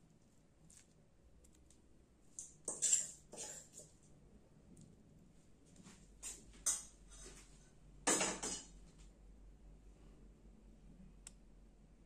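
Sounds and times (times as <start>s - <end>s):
rustle or scrape: 2.4s - 4.0s, 5.8s - 7.8s.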